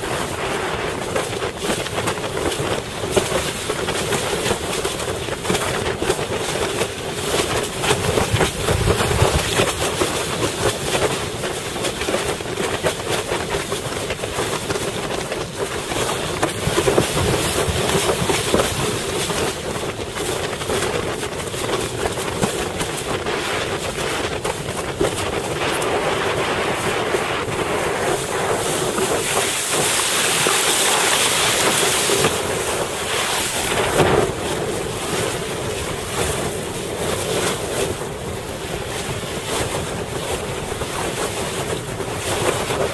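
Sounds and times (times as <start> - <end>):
board hull slapping water: 0.0 - 42.9
wind buffeting microphone: 0.0 - 42.9
water rushing: 25.6 - 36.1.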